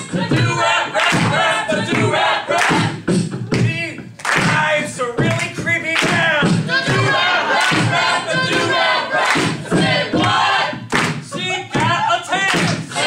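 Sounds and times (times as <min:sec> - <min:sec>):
beatboxed beat: 0:00.0 - 0:13.0
voices chanting a rap: 0:00.0 - 0:13.0.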